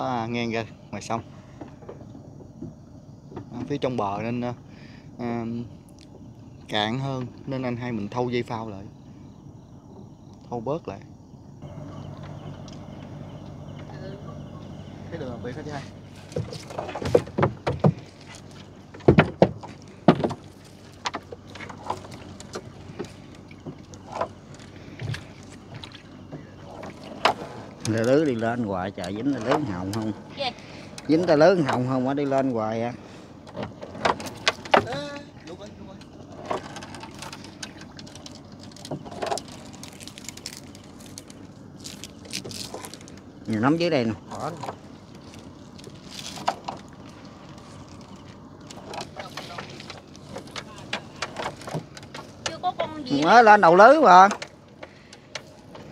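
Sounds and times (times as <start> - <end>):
knocks and clatter in boat: 0.0 - 4.7, 11.6 - 40.6, 42.4 - 55.9
water splashing: 13.9 - 55.9
net being hauled by hand: 38.0 - 43.2, 44.3 - 52.4.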